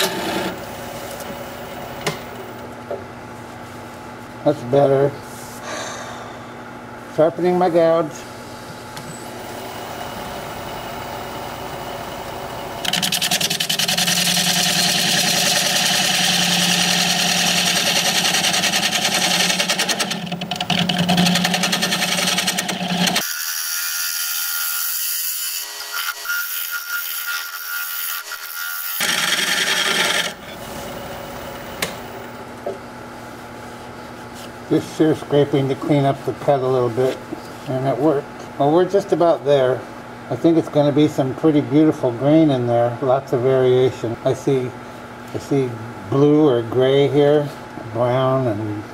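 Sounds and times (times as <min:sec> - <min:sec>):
lathe motor hum: 0:09.3 - 0:23.2, 0:28.0 - 0:32.4.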